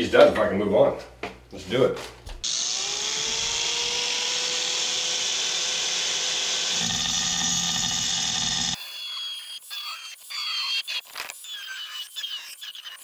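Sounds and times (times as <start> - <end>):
angle grinder cutting tile: 2.4 - 9.5.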